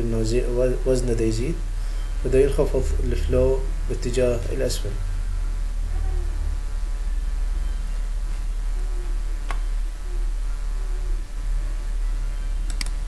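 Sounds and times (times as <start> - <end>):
electrical mains hum: 0.0 - 13.0
faint clicks: 12.6 - 13.0.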